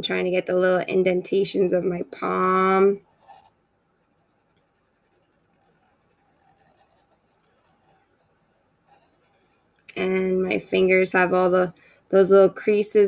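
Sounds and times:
marker scratching on paper: 0:03.0 - 0:03.5, 0:04.2 - 0:09.8.

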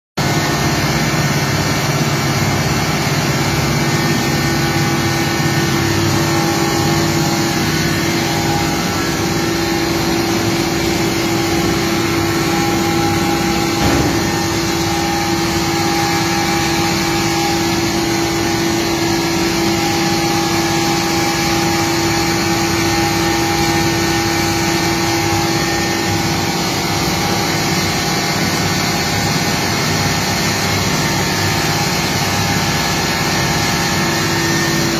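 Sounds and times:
extruder machine humming: 0:00.2 - 0:34.9.

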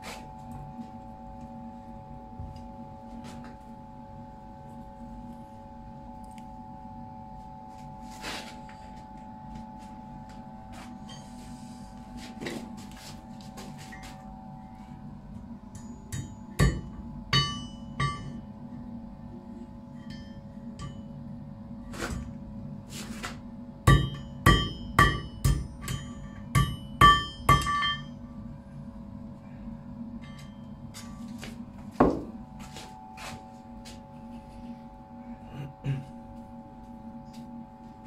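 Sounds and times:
steady hum: 0:00.0 - 0:38.0
hammer striking anvil: 0:15.8 - 0:18.4, 0:23.9 - 0:28.1.

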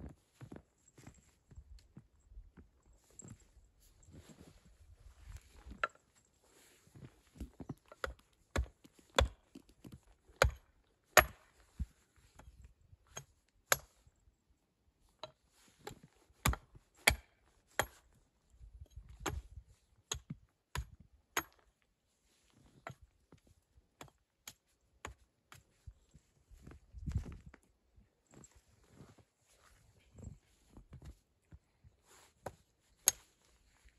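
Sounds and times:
wood chopping strikes: 0:11.2 - 0:11.4.

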